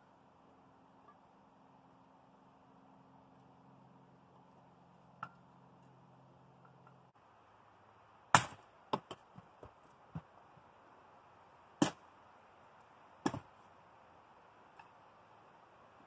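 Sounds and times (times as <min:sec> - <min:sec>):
hatchet chopping wood: 0:08.3 - 0:10.3, 0:11.8 - 0:12.0, 0:13.2 - 0:13.6.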